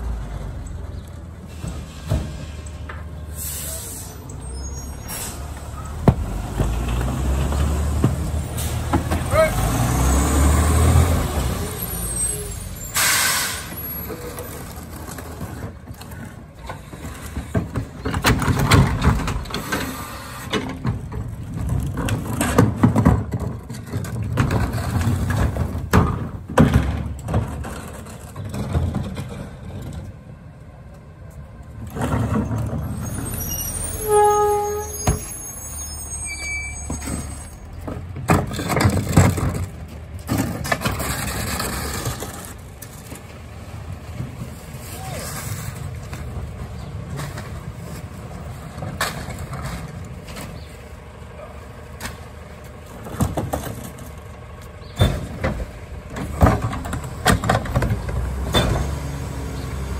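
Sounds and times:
air brake hissing: 3.3 - 5.6, 12.3 - 13.9
trash clattering and crunching: 13.7 - 30.2, 31.8 - 33.9, 36.8 - 59.4
garbage truck engine running: 45.6 - 59.9.

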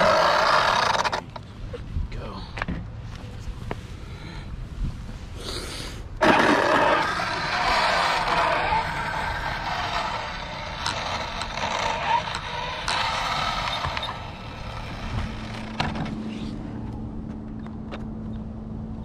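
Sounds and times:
rc car motor whine and tyre noise: 0.0 - 1.7, 6.0 - 18.5
steady low hum: 0.0 - 19.0.

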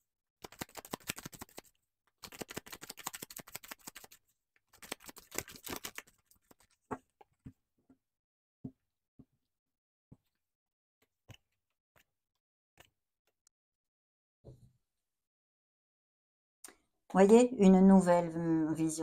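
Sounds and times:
cards shuffling: 0.4 - 6.9.

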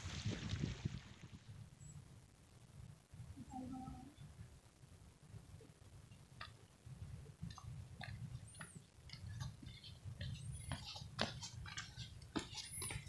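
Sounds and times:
low steady rumble: 0.0 - 12.3
faint irregular clicks: 6.1 - 6.8.

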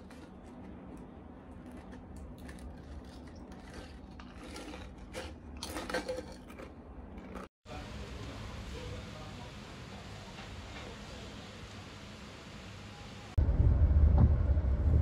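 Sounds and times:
crisps crunching when chewed: 0.0 - 7.5
crisps rattling in can: 1.7 - 7.4.

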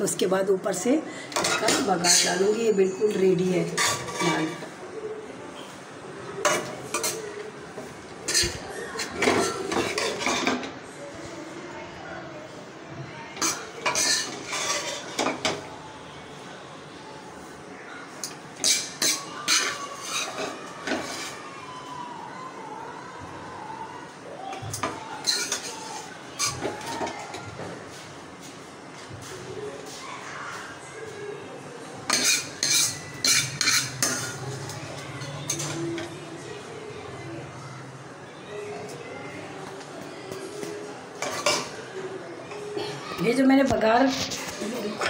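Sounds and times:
spoon scraping a metal pan: 1.4 - 2.5, 3.6 - 4.7, 8.2 - 10.7, 13.4 - 15.6, 18.6 - 21.4, 25.2 - 27.0, 32.1 - 34.6, 35.2 - 36.1, 41.2 - 41.8.

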